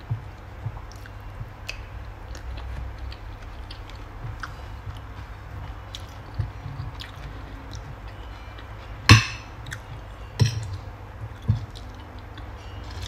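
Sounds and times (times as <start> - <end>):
faint chewing: 0.9 - 8.9
cutlery clinking on ceramic plate: 9.1 - 9.5, 10.4 - 10.8.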